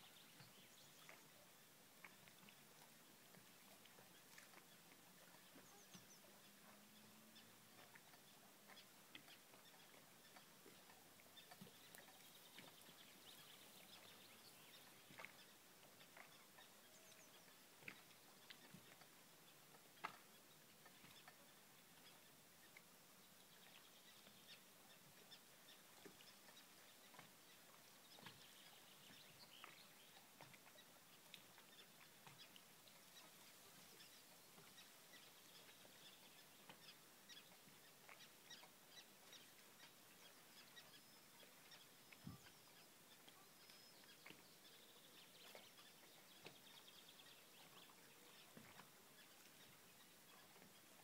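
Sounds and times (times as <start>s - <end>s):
soft ticks: 17.8s - 21.4s, 29.1s - 33.3s.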